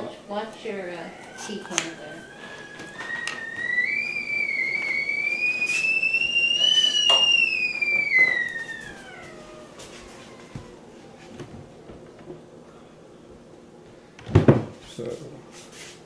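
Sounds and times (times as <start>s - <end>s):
tea kettle whistling: 0.8s - 11.4s.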